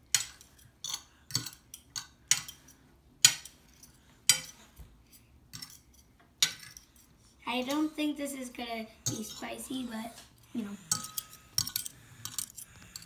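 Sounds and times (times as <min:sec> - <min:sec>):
forks clinking on a plate: 0:10.9 - 0:13.0.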